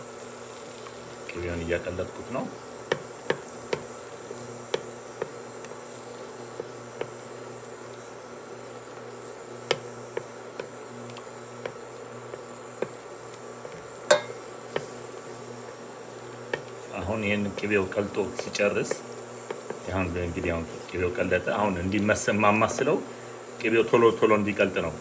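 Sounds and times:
electric hob buzz: 0:00.0 - 0:25.0
wooden spoon tapping metal pot: 0:02.9 - 0:03.9, 0:14.1 - 0:14.9.

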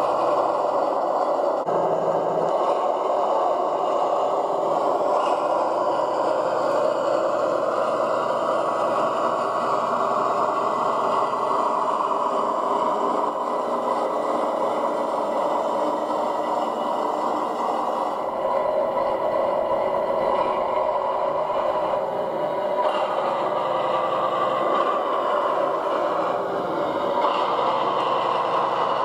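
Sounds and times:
model train running on track: 0:00.0 - 0:29.0.

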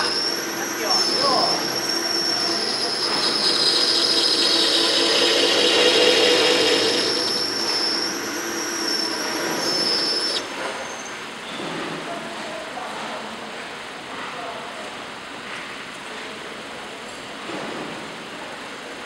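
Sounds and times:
lathe running: 0:00.0 - 0:10.6
lathe cutting squeal: 0:00.0 - 0:11.2.

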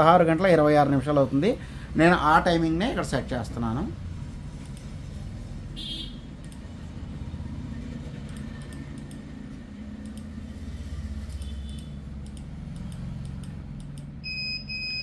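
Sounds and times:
faint clicks: 0:06.4 - 0:06.7, 0:10.0 - 0:10.4, 0:11.3 - 0:14.1.

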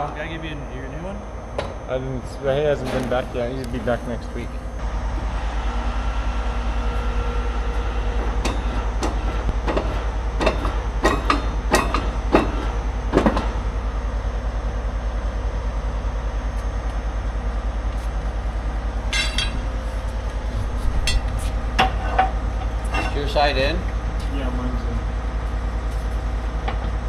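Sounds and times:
metal tool clanks and knocks: 0:19.1 - 0:19.7, 0:21.0 - 0:23.4.

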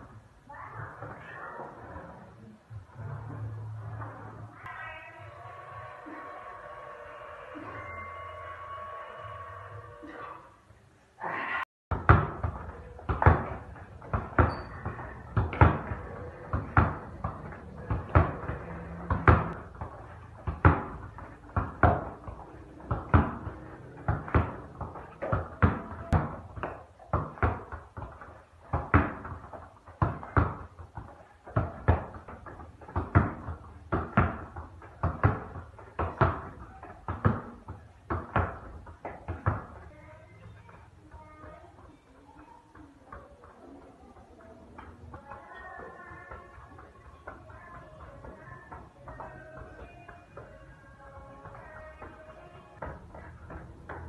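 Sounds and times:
football thudding on tiled floor: 0:11.9 - 0:39.8.

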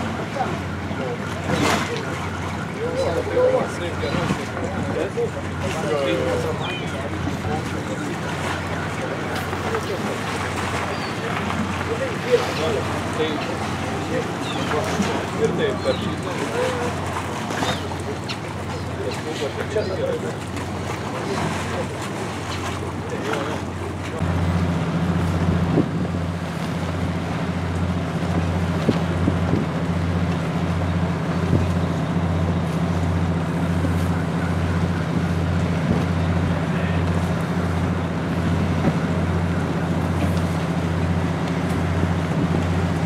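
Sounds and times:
ship engine droning: 0:00.0 - 0:43.0
wind buffeting microphone: 0:25.4 - 0:26.5, 0:28.2 - 0:30.3.

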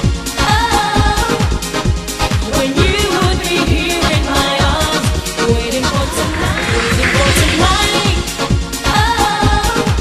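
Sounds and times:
upbeat pop dance music: 0:05.6 - 0:08.4
driving drum beat: 0:05.9 - 0:08.6.

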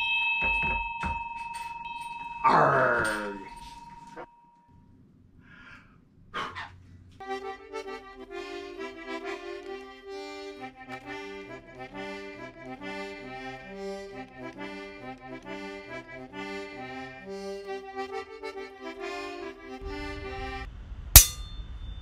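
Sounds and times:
lively accordion music: 0:07.2 - 0:20.7.

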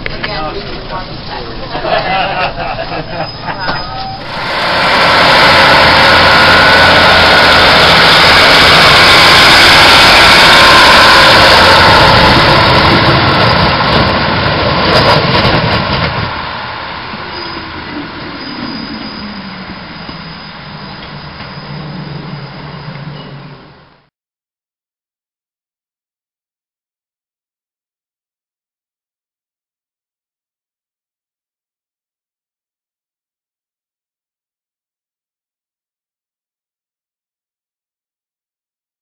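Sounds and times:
diesel train passing: 0:00.0 - 0:24.1.

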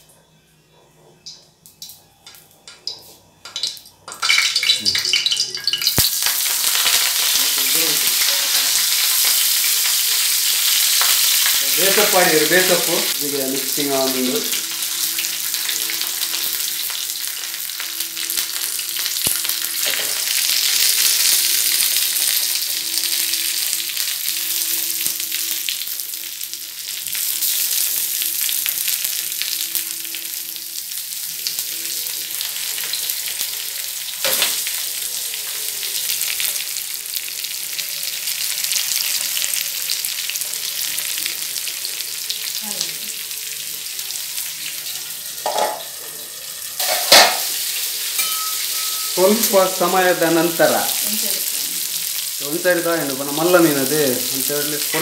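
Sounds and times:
fish sizzling in oil: 0:03.6 - 0:55.0.

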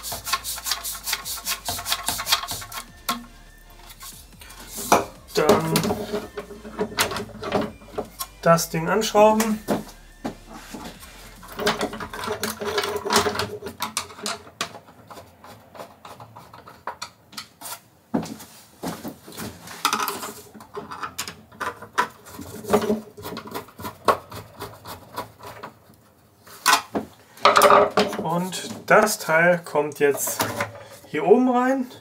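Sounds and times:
hand screwdriver turning screws: 0:00.0 - 0:08.6, 0:10.6 - 0:17.8.

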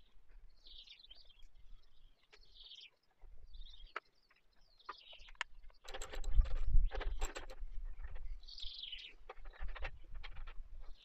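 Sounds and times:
faint birdsong: 0:00.0 - 0:11.0.

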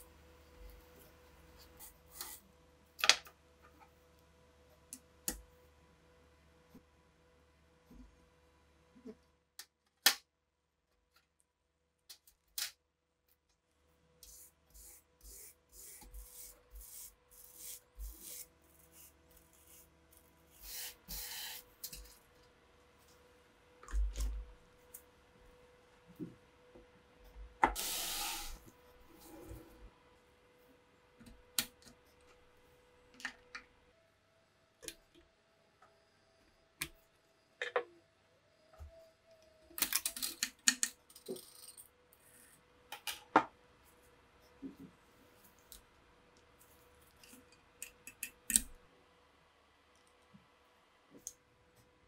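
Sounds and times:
faint steady hum: 0:13.0 - 0:52.0
metal parts clicking and scraping: 0:39.8 - 0:42.5.

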